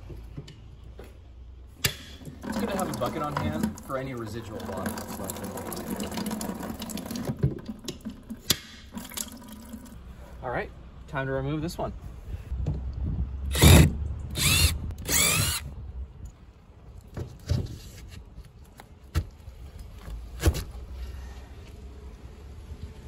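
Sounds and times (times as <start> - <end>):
cordless drill motor whine: 13.5 - 15.6.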